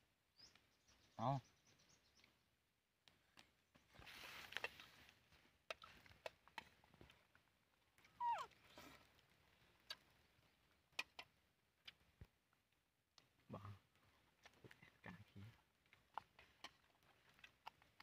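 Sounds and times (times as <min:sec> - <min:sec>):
animal squeaking call: 0:08.2 - 0:08.5.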